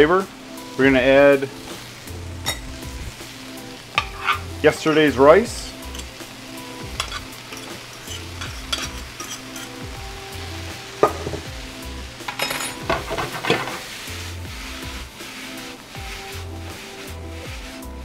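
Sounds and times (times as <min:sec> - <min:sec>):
food sizzling in a skillet: 0:00.0 - 0:18.0
pans scraping and clinking: 0:03.9 - 0:05.1, 0:05.8 - 0:06.2, 0:06.9 - 0:09.9, 0:11.0 - 0:11.5, 0:12.2 - 0:14.1.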